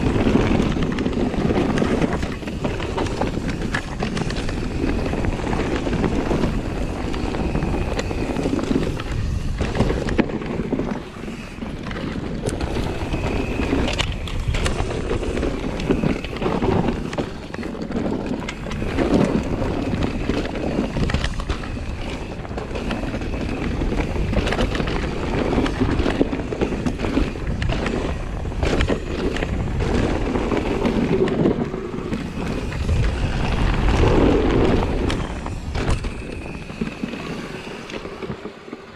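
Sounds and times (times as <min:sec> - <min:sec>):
bike knocking and rattling: 0:00.0 - 0:38.9
bike tyres rolling over dirt: 0:00.0 - 0:38.9
wind buffeting microphone: 0:00.0 - 0:38.9.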